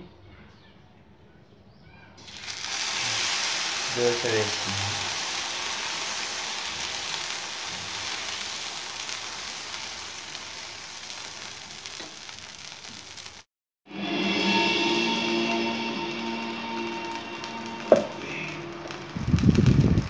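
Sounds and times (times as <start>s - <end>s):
batter sizzling on hot griddle: 2.2s - 13.5s, 14.3s - 20.0s
background music: 13.9s - 19.3s.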